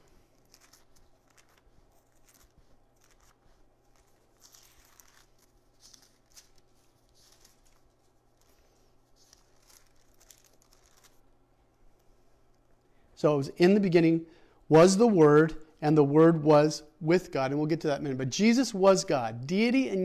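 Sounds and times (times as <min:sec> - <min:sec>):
thin pages rustling: 0:00.0 - 0:11.2
low steady hum: 0:00.0 - 0:20.0.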